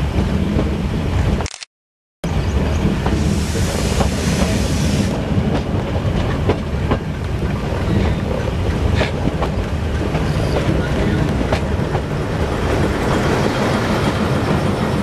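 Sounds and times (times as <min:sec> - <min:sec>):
train rumbling along track: 0:00.0 - 0:01.5, 0:02.2 - 0:15.0.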